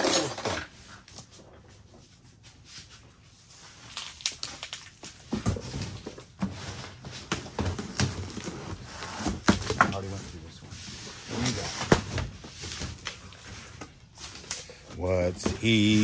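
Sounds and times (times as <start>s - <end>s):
cardboard rustling and scraping: 5.2s - 16.0s.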